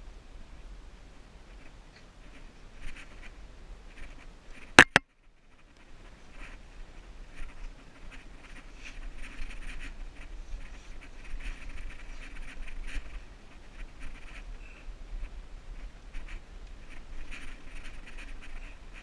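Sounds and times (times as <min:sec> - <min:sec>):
camera knocking rock: 0:04.8 - 0:05.0.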